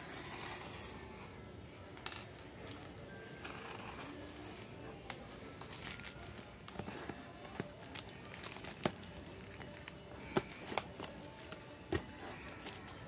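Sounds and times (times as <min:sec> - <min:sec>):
plastic pouch and tape crinkling: 0:05.0 - 0:13.0.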